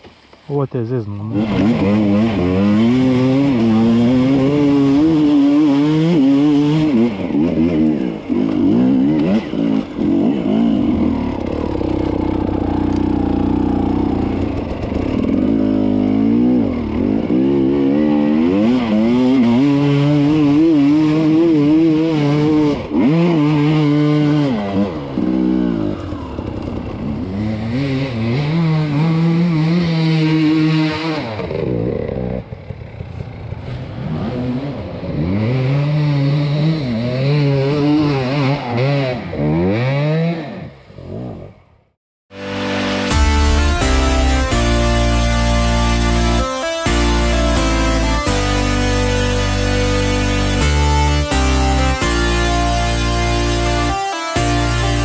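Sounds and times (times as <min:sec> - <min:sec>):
dirt bike engine revving: 0:01.1 - 0:41.7, 0:42.4 - 0:55.0.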